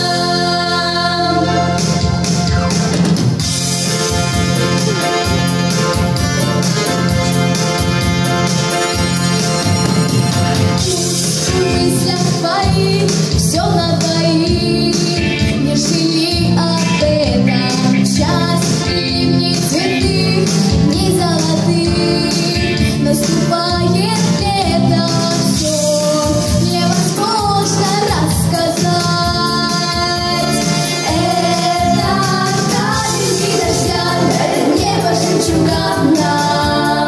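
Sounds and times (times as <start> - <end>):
girl singing into a microphone: 0.0 - 1.6, 10.8 - 37.0
song over sound system: 0.0 - 37.0.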